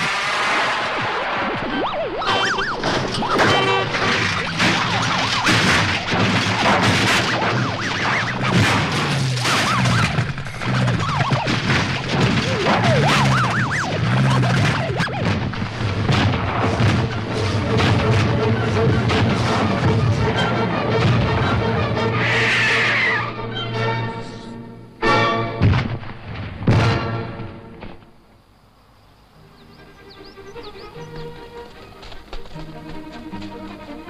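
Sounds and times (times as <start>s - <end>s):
explosions and crashes: 0.0s - 22.2s, 25.6s - 28.0s
car crashing: 0.0s - 22.4s
film action music: 1.6s - 25.8s.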